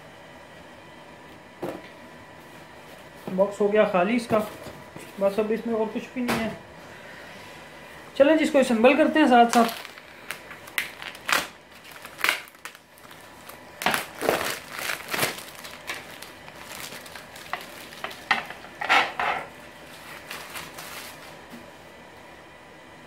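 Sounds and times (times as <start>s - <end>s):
plastic bag crinkling: 9.2s - 21.4s.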